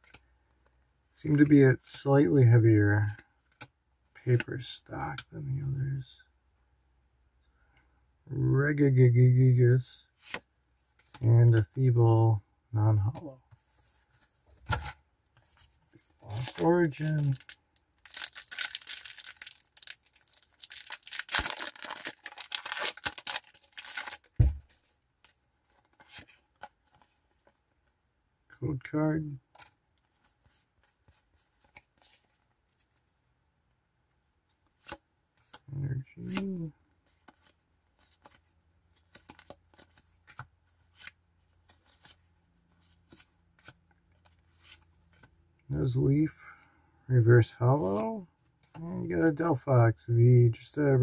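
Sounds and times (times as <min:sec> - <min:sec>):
foil wrapper tearing: 0:16.4 - 0:24.4.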